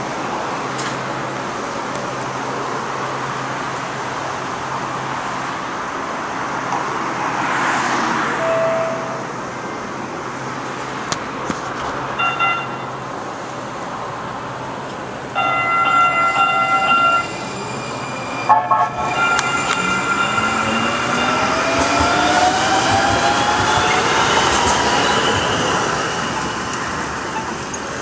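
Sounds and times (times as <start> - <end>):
short tone: 8.4 - 9.3, 12.2 - 13.0, 15.4 - 21.5
train wheels rumbling on track: 8.4 - 28.0.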